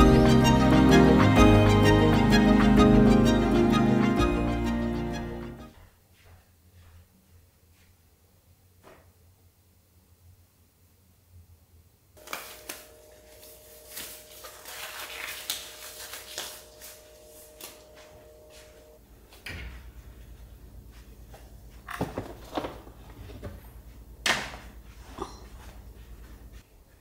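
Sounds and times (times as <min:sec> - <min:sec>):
low steady hum: 0:06.7 - 0:27.0
gloves rustling and snapping: 0:12.2 - 0:13.0, 0:13.9 - 0:17.0.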